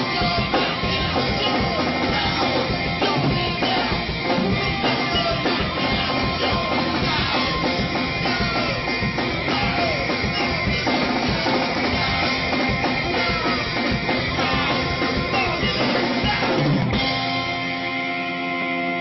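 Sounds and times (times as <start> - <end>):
person singing: 0.0 - 17.0
bass guitar: 0.0 - 19.0
drum kit: 0.0 - 19.0
electric guitar: 0.0 - 19.0.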